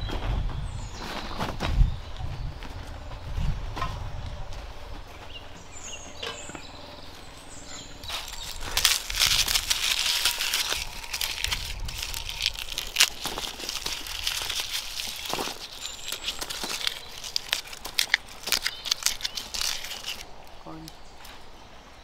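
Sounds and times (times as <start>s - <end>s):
garlic skins crackling: 7.8s - 21.3s.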